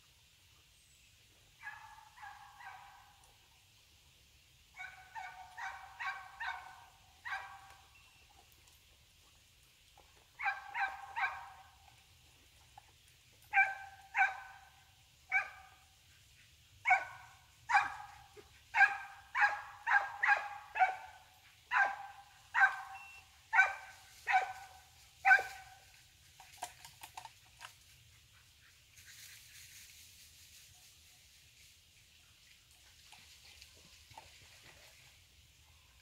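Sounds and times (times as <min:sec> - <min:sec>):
dog barking sharply: 0:18.8 - 0:24.6, 0:25.2 - 0:25.7.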